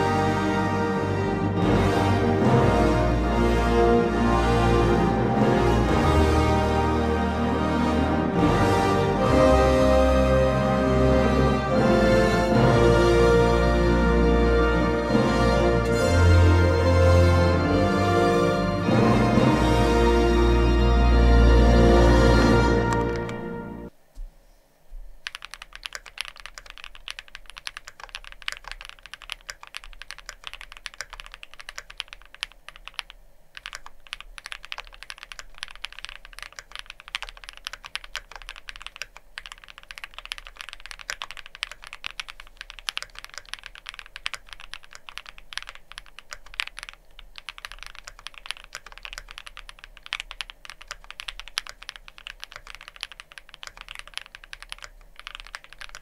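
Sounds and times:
mechanical keyboard typing: 25.2s - 56.0s.

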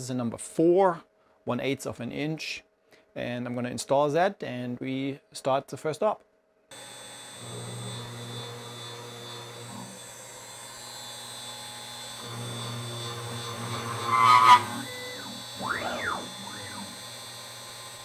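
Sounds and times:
router spindle high whine: 6.7s - 18.0s
axis motors whining: 12.1s - 18.0s
cutting squeal: 13.4s - 17.0s.

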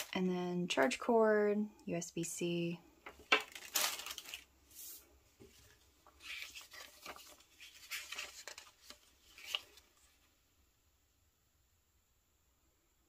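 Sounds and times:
paper leaflet rustling: 3.1s - 10.3s.

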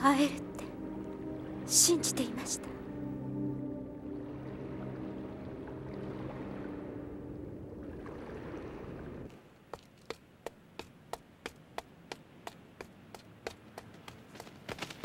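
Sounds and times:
sustained low music chord: 0.0s - 9.2s
hard-soled footsteps: 9.3s - 15.0s.

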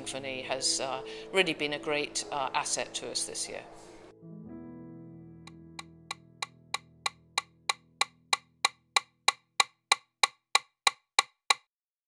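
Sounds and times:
background music: 0.0s - 9.0s
metronomes ticking: 6.4s - 11.6s.

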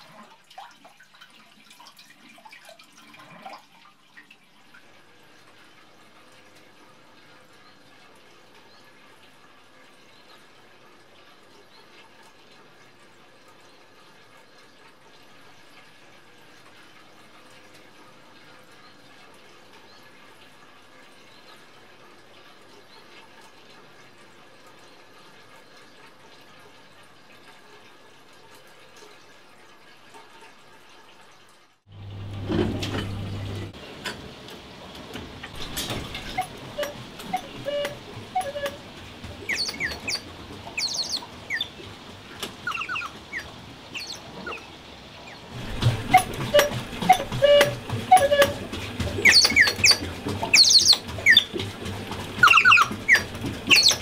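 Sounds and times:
water trickling through tubes: 0.0s - 54.0s
songbirds chirping: 35.6s - 41.9s, 42.6s - 45.5s, 49.2s - 51.6s.

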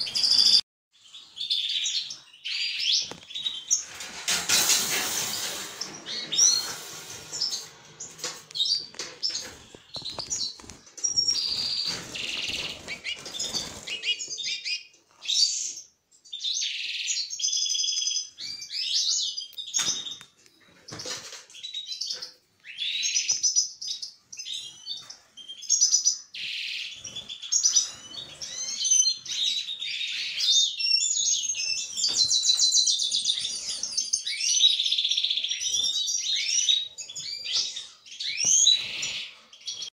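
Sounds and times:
rustling noise: 3.1s - 14.3s.

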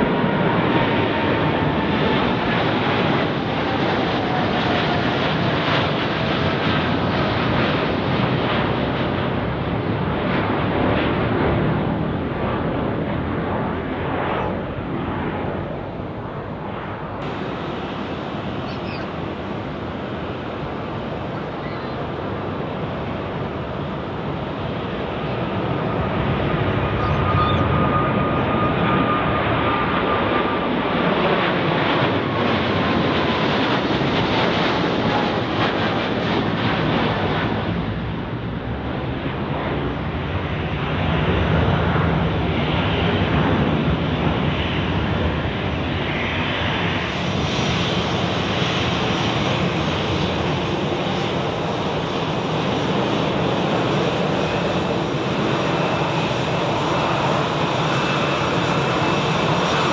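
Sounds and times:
jet engines roaring: 0.0s - 59.9s
faint engine whine: 10.1s - 30.7s.

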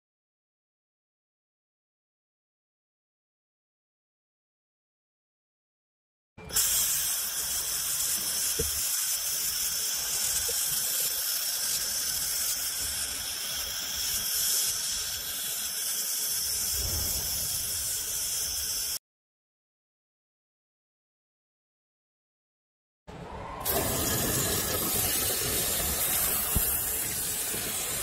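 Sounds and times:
laser welding hiss: 6.5s - 19.0s, 23.6s - 28.0s.

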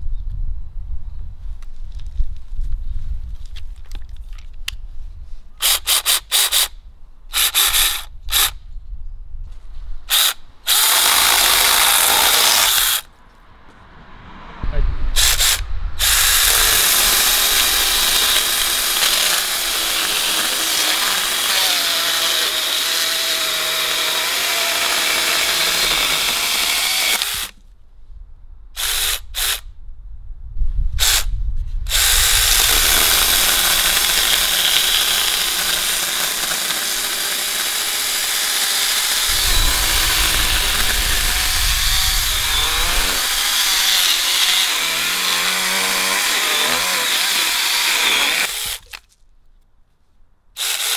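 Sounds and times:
chainsaw sawing log: 10.1s - 13.1s, 15.2s - 27.6s, 31.9s - 49.0s, 50.6s - 50.9s.

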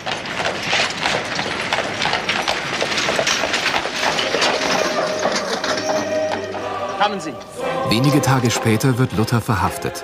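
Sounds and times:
wagon wooden clattering: 0.0s - 6.6s.

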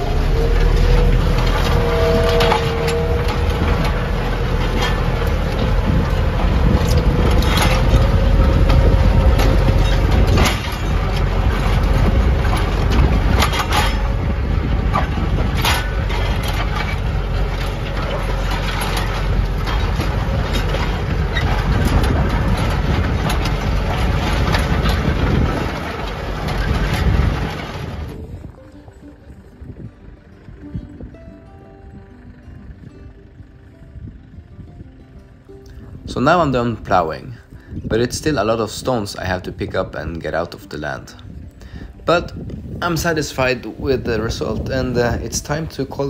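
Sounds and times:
diesel tractor engine running: 0.0s - 46.0s
sharp knocks and clatters: 0.6s - 28.2s.

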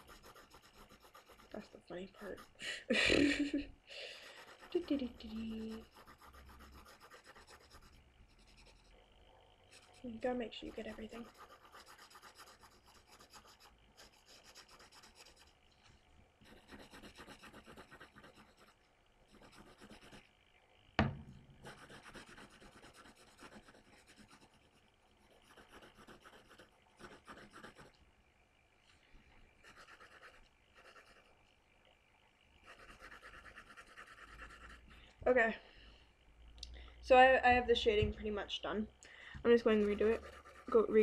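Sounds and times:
pencil scratching on paper: 0.0s - 2.6s, 4.2s - 9.0s, 9.7s - 15.6s, 16.4s - 20.2s, 21.6s - 28.0s, 29.6s - 31.3s, 32.6s - 34.8s, 39.5s - 41.0s
sharp knock: 21.0s - 21.6s.

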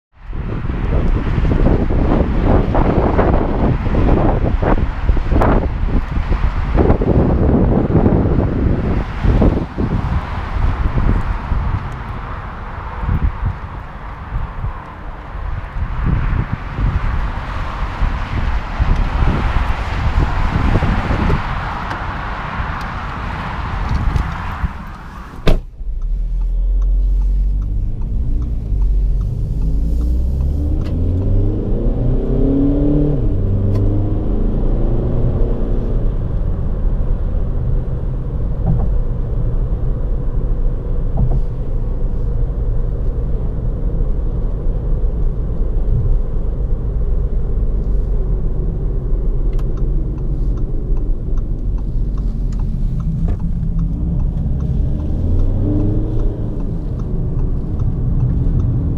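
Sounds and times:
diesel car engine: 0.1s - 58.9s
road and tyre noise: 0.1s - 58.9s
car door slamming: 25.1s - 26.0s.

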